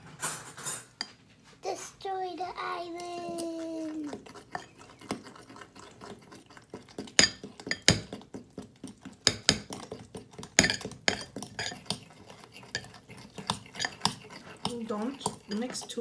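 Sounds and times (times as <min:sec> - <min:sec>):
forks clinking against bowl: 0:07.2 - 0:08.0, 0:10.6 - 0:16.0.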